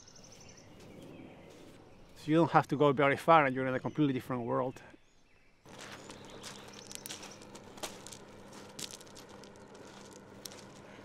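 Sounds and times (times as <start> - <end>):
footsteps crunching on pebbles: 5.7 - 11.0.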